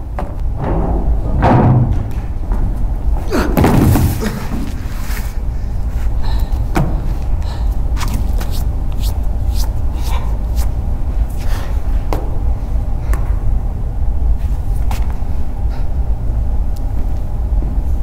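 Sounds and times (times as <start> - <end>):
footsteps on wooden stage: 0.0 - 5.1
steady low hum: 0.0 - 18.0.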